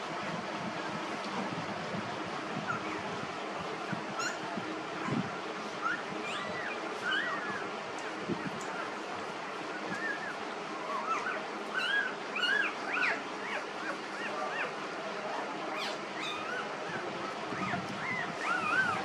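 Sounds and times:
puppies squeaking and whimpering: 2.6s - 3.0s, 4.1s - 9.0s, 9.6s - 19.0s.

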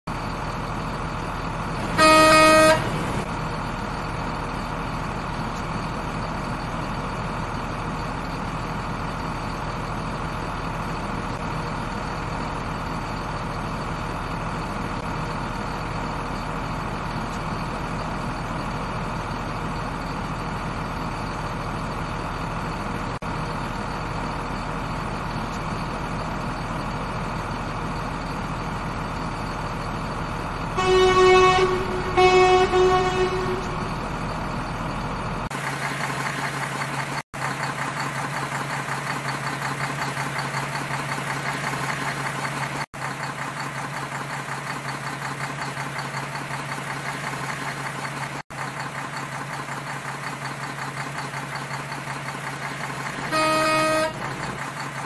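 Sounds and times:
truck engine running: 0.1s - 55.0s
horn toot: 1.8s - 3.2s, 30.8s - 33.9s, 53.2s - 54.4s.

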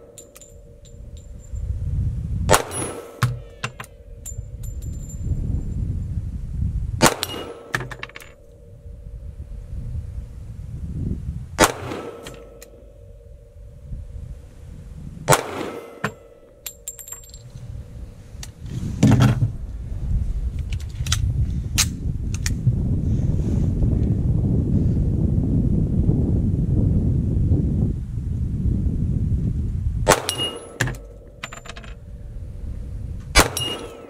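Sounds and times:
pistol shots: 2.5s - 3.7s, 7.0s - 7.9s, 11.6s - 12.7s, 15.3s - 16.3s, 30.1s - 31.1s, 33.4s - 34.0s
steel plate target clanging: 2.5s - 5.2s, 7.0s - 8.5s, 30.1s - 32.0s, 33.4s - 34.0s.

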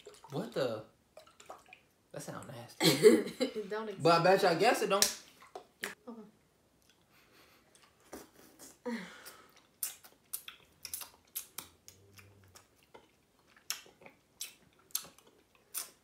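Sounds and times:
lip smacks and tongue clicks: 9.2s - 16.0s.

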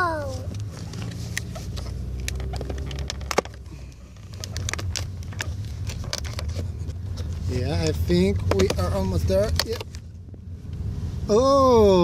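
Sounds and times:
low car hum: 0.0s - 12.0s.

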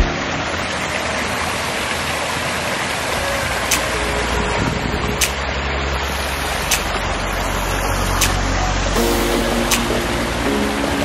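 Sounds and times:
stream running over rocks: 0.0s - 11.0s
ticking background music: 3.7s - 3.9s, 5.2s - 5.6s, 6.6s - 7.1s, 8.1s - 11.0s.

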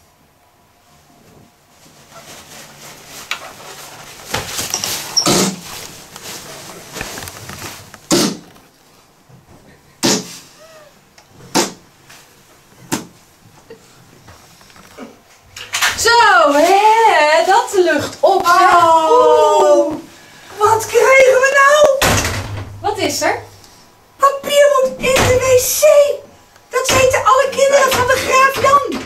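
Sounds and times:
toilet paper rustling: 1.2s - 9.1s, 16.0s - 21.9s.

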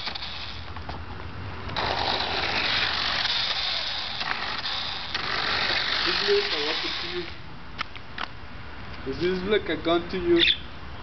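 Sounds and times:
toy car motor rattling on asphalt: 0.0s - 1.0s, 1.7s - 7.4s.

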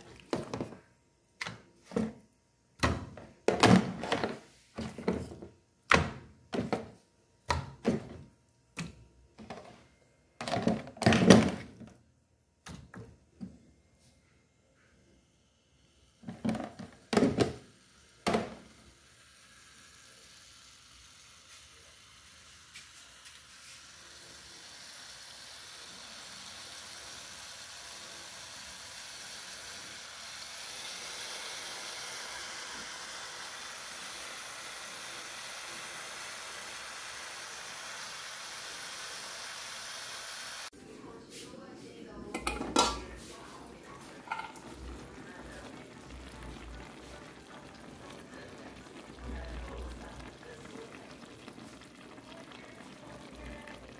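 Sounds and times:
chicken sizzling in a pot: 15.2s - 40.8s, 42.3s - 53.9s
lid clanking against pot: 42.3s - 43.1s, 44.2s - 44.7s.

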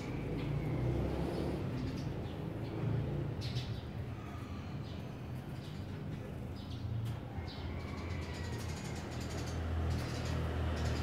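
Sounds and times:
sparrow chirping: 0.0s - 11.0s.

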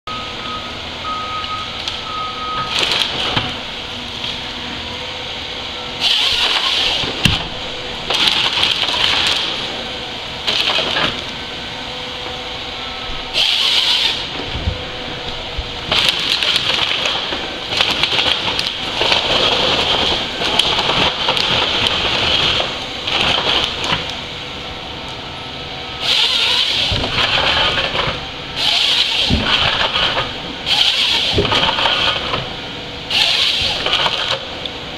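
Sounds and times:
harvester engine running: 0.1s - 34.9s
chainsaw cutting logs: 2.7s - 3.6s, 6.0s - 9.8s, 10.4s - 11.3s, 13.3s - 14.5s, 15.8s - 24.2s, 26.0s - 32.5s, 33.1s - 34.7s.

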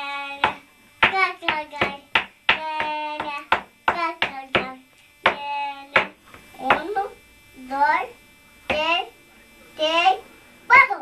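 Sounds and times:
child singing: 0.0s - 7.0s.

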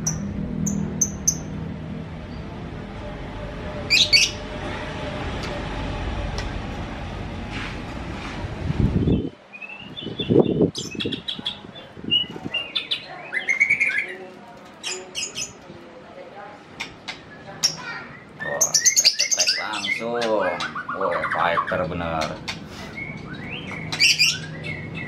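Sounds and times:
steady rushing noise: 0.0s - 9.4s
bird whistling and chirping: 9.0s - 11.3s, 22.9s - 25.0s.

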